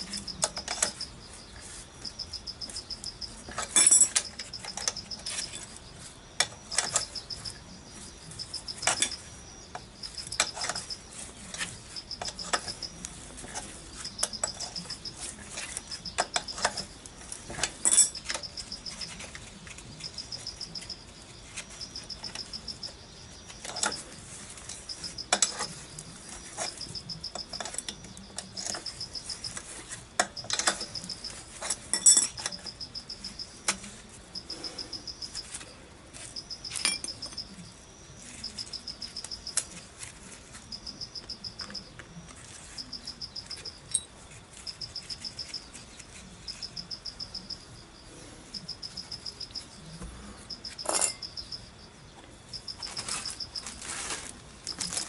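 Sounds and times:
insect chirping: 0.0s - 55.0s
wrench clinking on metal: 3.0s - 5.6s, 17.5s - 19.2s, 30.2s - 32.8s, 36.6s - 37.5s, 50.7s - 51.4s.

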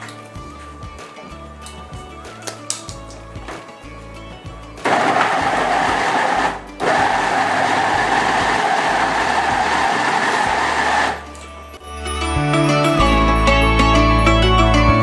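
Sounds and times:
electric chopper motor running: 4.8s - 11.2s
blades chopping meat and vegetables: 4.9s - 11.2s.

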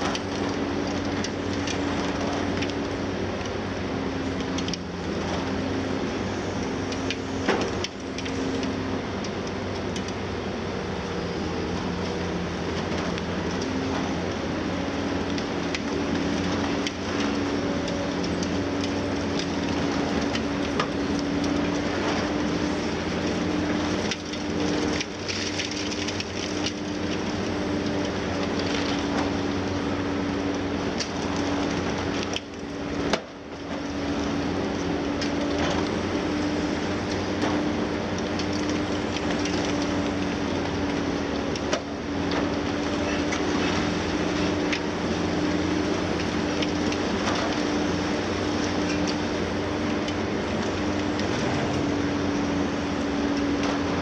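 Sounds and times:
concrete crunching and cracking: 0.0s - 54.0s
excavator engine droning: 0.0s - 54.0s
falling rubble clatter: 48.2s - 52.7s.

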